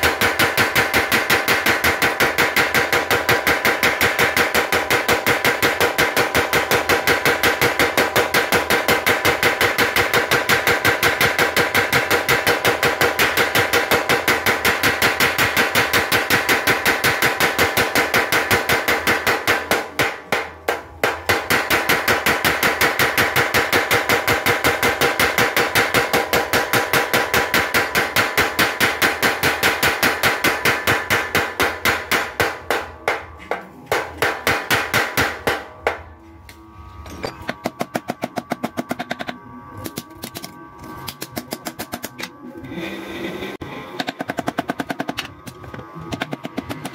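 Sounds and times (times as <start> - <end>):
power hammer striking metal: 0.0 - 36.2.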